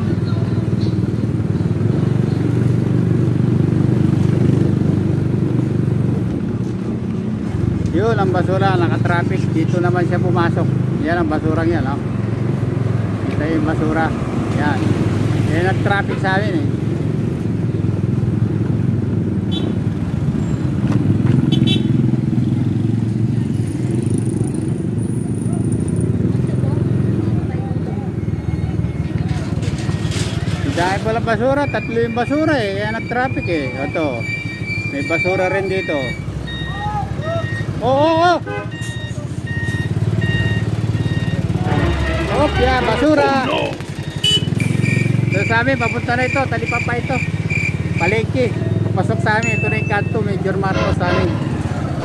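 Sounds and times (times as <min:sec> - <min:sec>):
short high beeps: 0:32.8 - 0:37.8, 0:38.7 - 0:41.5, 0:49.4 - 0:50.3.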